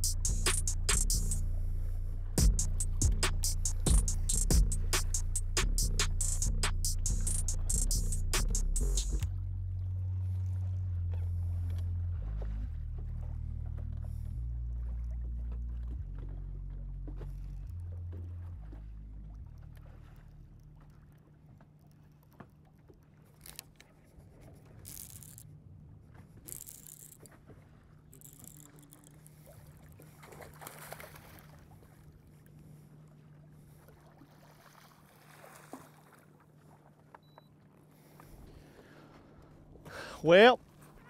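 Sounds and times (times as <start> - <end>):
electric trolling motor humming: 0.0 - 10.2
water slapping hull: 2.2 - 37.1.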